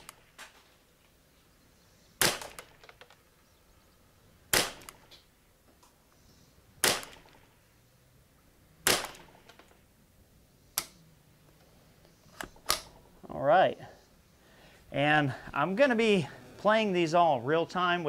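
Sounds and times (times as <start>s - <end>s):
rifle shots: 2.2s - 3.0s, 4.5s - 5.2s, 6.8s - 7.6s, 8.8s - 9.6s.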